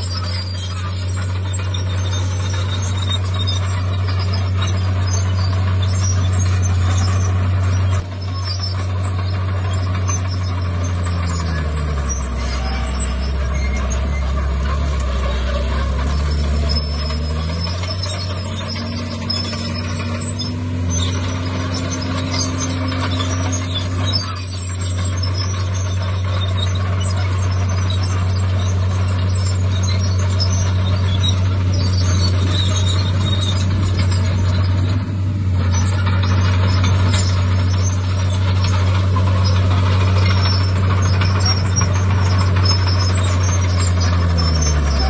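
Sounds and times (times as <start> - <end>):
bulldozer diesel engine under load: 0.0 - 45.0.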